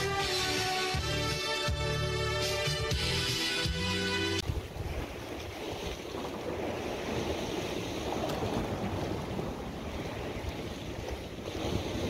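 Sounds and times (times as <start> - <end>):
sea waves washing against rocks: 4.4 - 12.0
wind buffeting microphone: 4.4 - 12.0.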